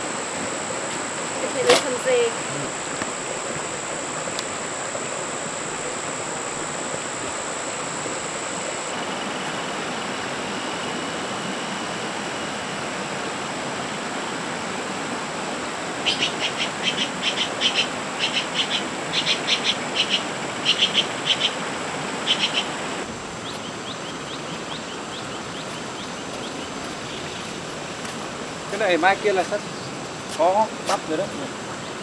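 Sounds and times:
steady rain: 0:00.0 - 0:18.2
shrill chirping call: 0:22.3 - 0:22.7.

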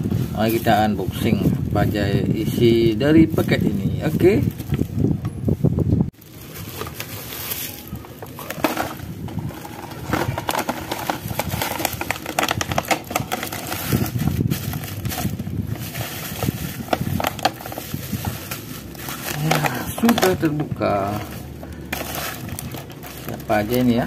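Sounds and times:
packaging being torn open: 0:06.3 - 0:24.0.

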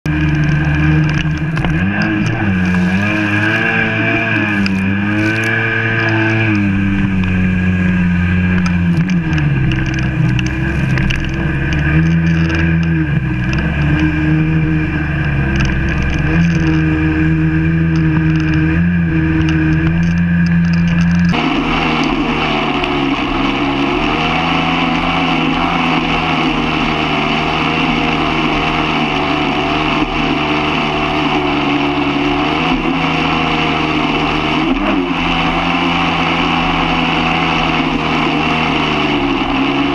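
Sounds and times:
personal watercraft engine running: 0:00.0 - 0:39.9
water rushing: 0:00.2 - 0:14.1.

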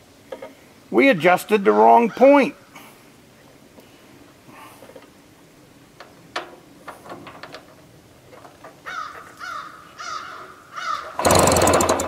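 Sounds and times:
crow cawing: 0:08.8 - 0:11.2.

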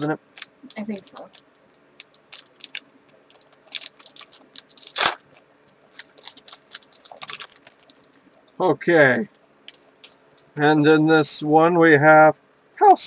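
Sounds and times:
foil wrapper crinkling: 0:00.0 - 0:08.6, 0:09.7 - 0:10.6
wrapper ripping: 0:00.0 - 0:08.6.

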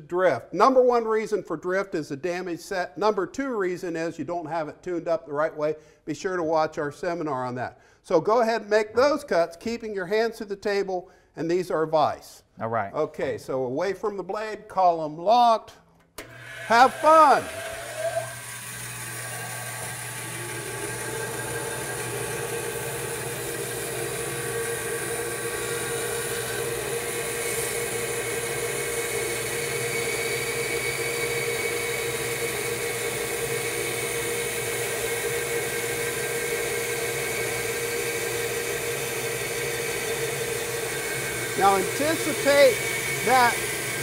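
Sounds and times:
bandsaw cutting wood: 0:16.2 - 0:44.0.

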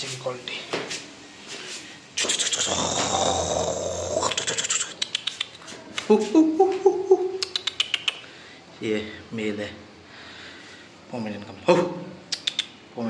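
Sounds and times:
dog claws clicking on marble floor: 0:04.9 - 0:06.1.

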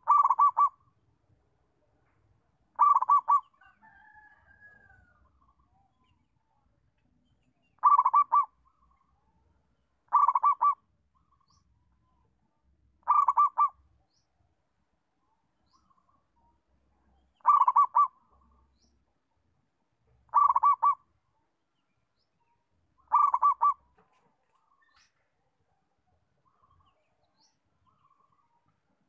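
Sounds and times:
dove cooing: 0:00.0 - 0:00.8, 0:02.8 - 0:03.9, 0:07.8 - 0:08.5, 0:10.1 - 0:10.8, 0:13.0 - 0:13.8, 0:17.4 - 0:18.4, 0:20.3 - 0:21.1, 0:23.1 - 0:24.0.

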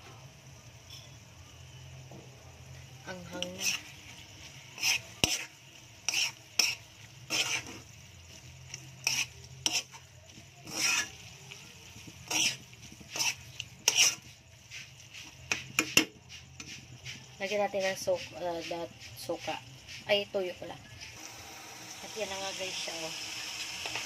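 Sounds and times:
light sizzle: 0:00.0 - 0:24.0
spatula scraping metal wok: 0:03.1 - 0:21.2.

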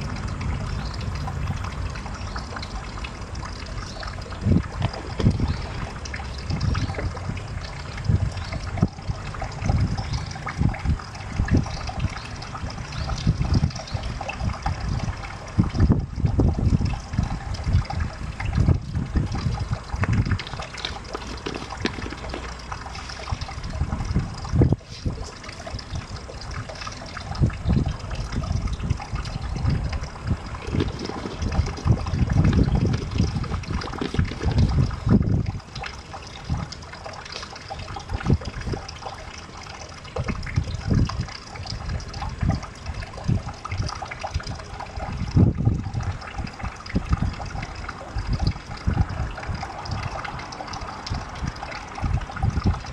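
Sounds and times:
low rumbles: 0:00.0 - 0:47.6
water trickling and splashing: 0:00.0 - 0:52.9
small splashes: 0:00.9 - 0:13.1, 0:18.4 - 0:45.0.

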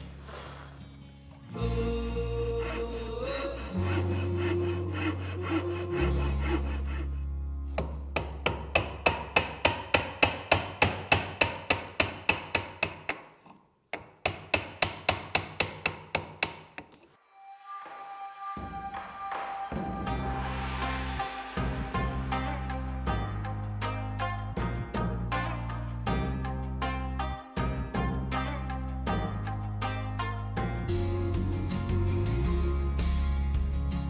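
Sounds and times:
music with held low notes: 0:00.9 - 0:08.5, 0:17.3 - 0:34.0
pull saw cutting wood: 0:02.3 - 0:07.2.

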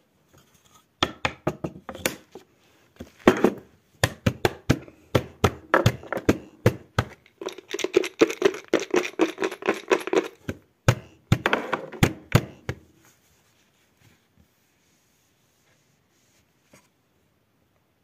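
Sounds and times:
taps on hard object: 0:03.3 - 0:07.2, 0:10.4 - 0:12.8.

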